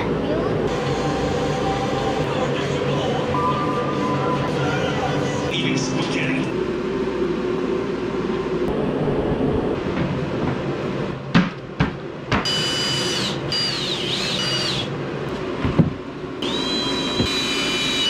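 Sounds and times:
steady low hum: 0:00.0 - 0:18.0
cordless drill whining: 0:12.5 - 0:14.9, 0:16.4 - 0:18.0.

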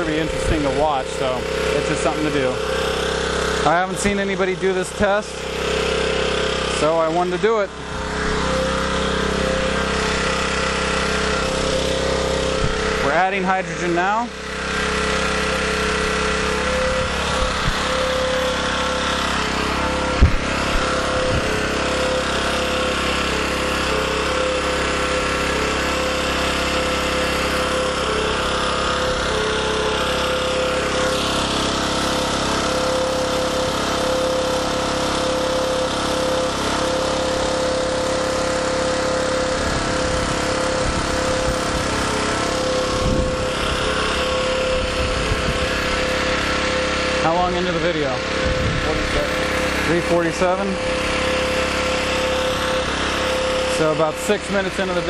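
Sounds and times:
generator engine running: 0:00.0 - 0:55.0.

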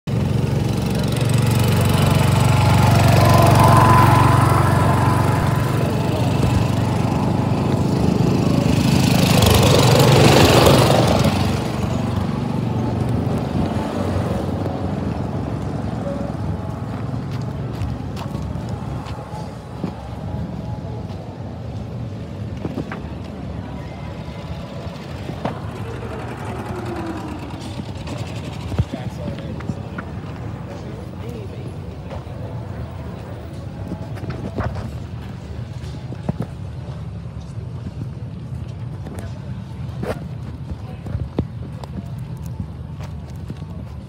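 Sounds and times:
engine droning: 0:00.1 - 0:44.0
rushing noise: 0:00.4 - 0:20.8.

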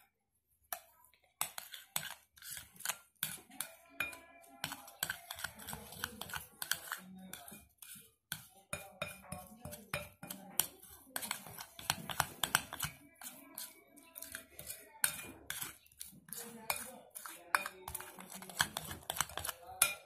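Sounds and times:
metal spoon scraping glass bowl: 0:00.7 - 0:20.0.

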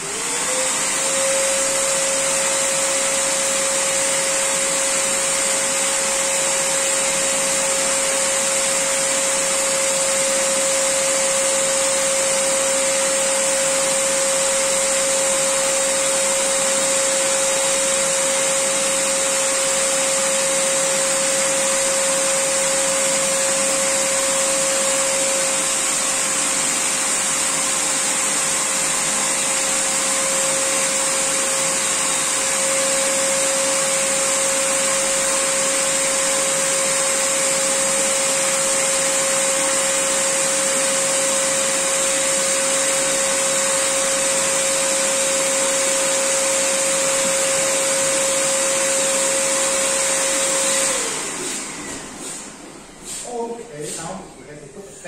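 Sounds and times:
electric air pump humming: 0:00.0 - 0:55.0
air hissing through hose: 0:52.2 - 0:54.2.

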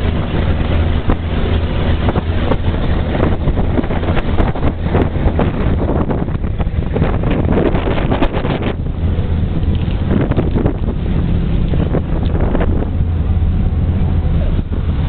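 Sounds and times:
low engine drone: 0:00.0 - 0:15.0
wind buffeting microphone: 0:00.0 - 0:15.0.

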